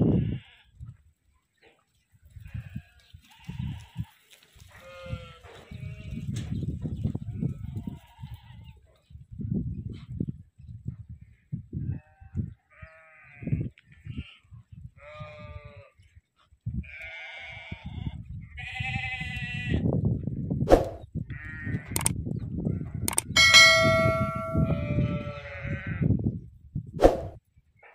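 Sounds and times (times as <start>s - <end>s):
sharp clicks: 22.0s - 22.2s, 23.1s - 23.4s
short metallic ding: 23.3s - 25.2s.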